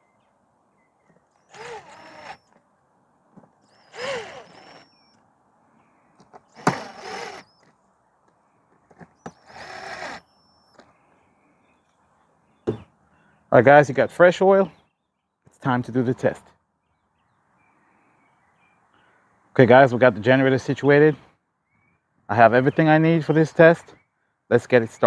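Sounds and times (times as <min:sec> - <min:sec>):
cordless drill whirring: 0:01.4 - 0:02.6, 0:03.7 - 0:05.2, 0:06.5 - 0:07.6, 0:09.3 - 0:10.2.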